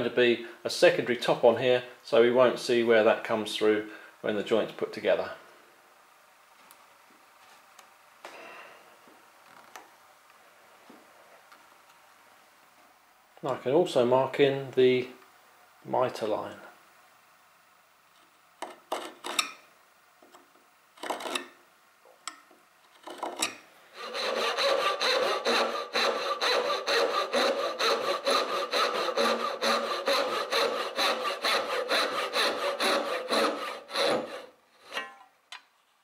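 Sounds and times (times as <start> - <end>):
knife scraping along a square: 21.0 - 21.5, 22.9 - 35.0
hand saw cutting wood: 21.0 - 21.6, 23.0 - 35.1.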